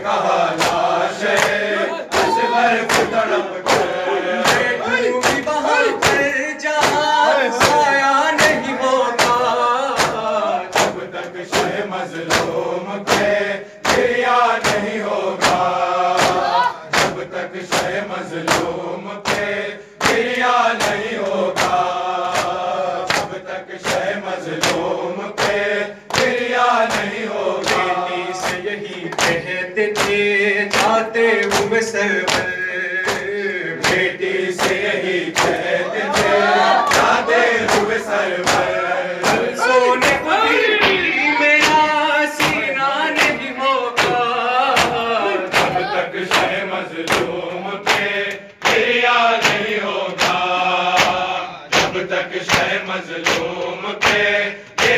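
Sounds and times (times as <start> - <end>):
crowd chanting in chorus: 0.0 - 54.9
men chanting into a microphone: 0.0 - 54.9.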